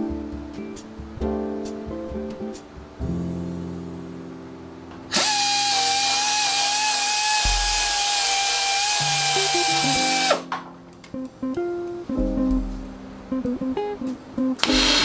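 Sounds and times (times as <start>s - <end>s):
acoustic guitar music: 0.0s - 5.1s, 7.4s - 7.9s, 9.0s - 14.9s
power tool whining: 5.1s - 10.4s, 14.6s - 15.0s.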